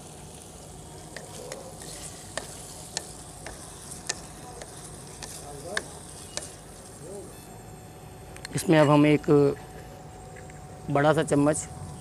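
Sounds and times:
faint sizzle of frying: 0.0 - 12.0.

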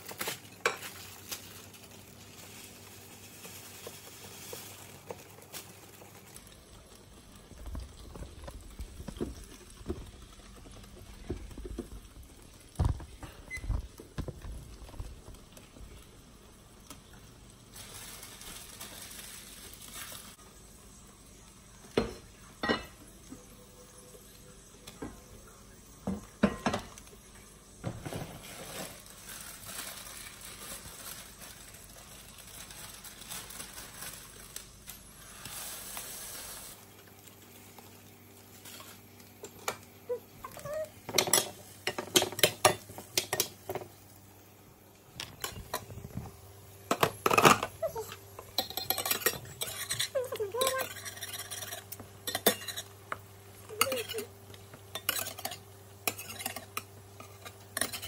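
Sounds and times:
faint steady hiss: 0.0 - 50.8
metal utensils clinking on dishes: 40.7 - 43.8, 46.9 - 52.9, 53.7 - 54.3, 54.9 - 58.0.

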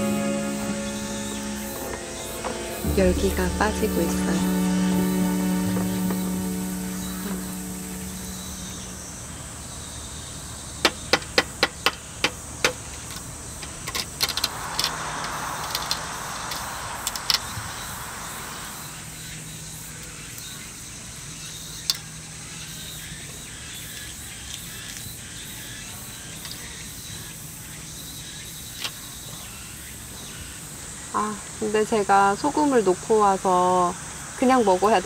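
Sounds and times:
soft hiss: 0.0 - 10.2, 12.9 - 21.2.

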